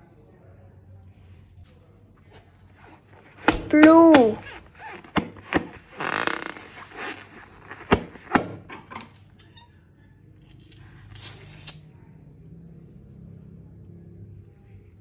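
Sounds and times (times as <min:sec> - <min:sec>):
rubber balloons squeaking: 0:03.4 - 0:08.2.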